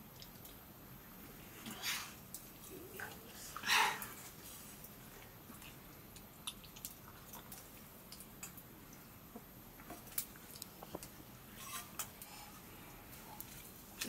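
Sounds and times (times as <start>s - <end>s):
chewing and mouth noises: 4.8s - 8.6s.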